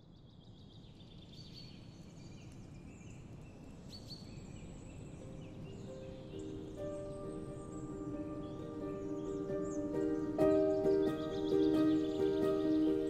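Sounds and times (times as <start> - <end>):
small birds chirping: 0.0 - 13.0
steady low outdoor noise: 0.0 - 13.0
soft held music notes: 4.6 - 13.0.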